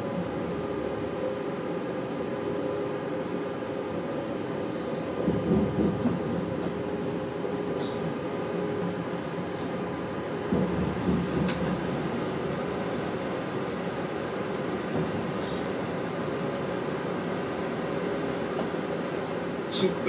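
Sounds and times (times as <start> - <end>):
train rumble and hum: 0.0 - 20.0
high squeal: 11.2 - 16.2.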